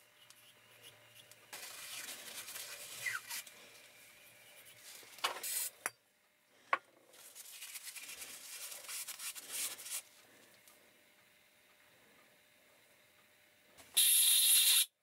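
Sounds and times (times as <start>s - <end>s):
paper rag scraping in metal bore: 1.6s - 3.6s.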